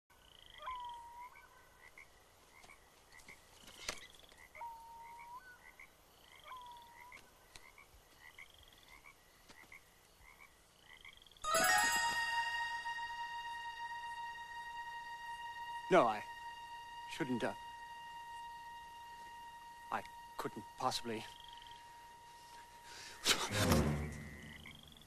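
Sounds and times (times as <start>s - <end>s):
frogs croaking: 0.1s - 11.5s, 13.0s - 25.0s
frogs trilled calls: 0.2s - 23.2s, 24.2s - 25.0s
chiming music: 11.4s - 22.2s.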